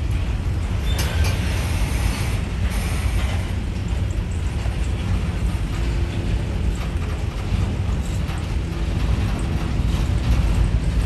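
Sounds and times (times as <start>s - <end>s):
train wheels rumbling on rail: 0.0s - 11.0s
metallic rattling of cars: 2.8s - 11.0s.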